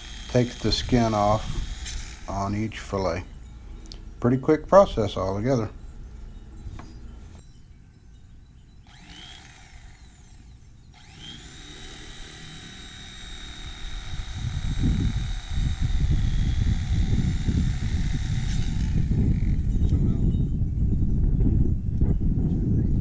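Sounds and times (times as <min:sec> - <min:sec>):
electric fillet knife motor whining: 0:00.0 - 0:02.6, 0:08.8 - 0:20.0.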